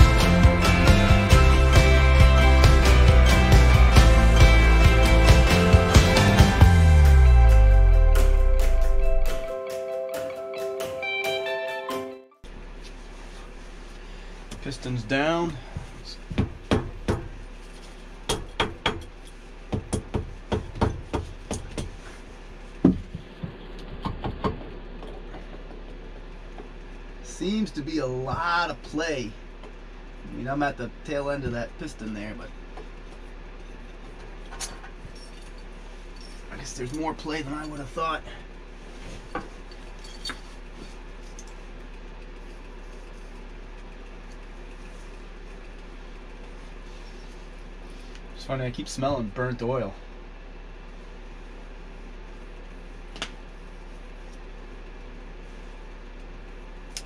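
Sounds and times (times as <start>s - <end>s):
low background hum: 12.4s - 57.0s.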